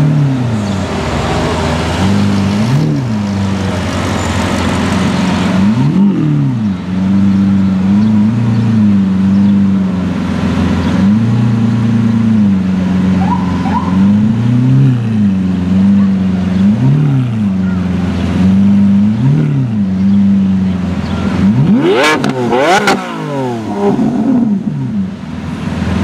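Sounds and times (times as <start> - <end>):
car engine idling: 0.0 - 26.0
engine throttle blips: 0.0 - 26.0.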